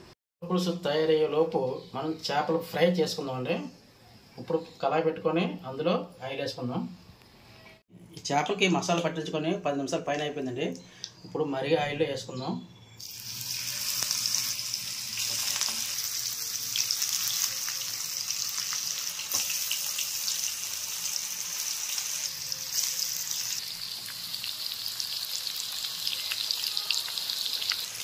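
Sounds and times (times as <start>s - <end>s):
fish sizzling in hot oil: 13.0s - 28.0s.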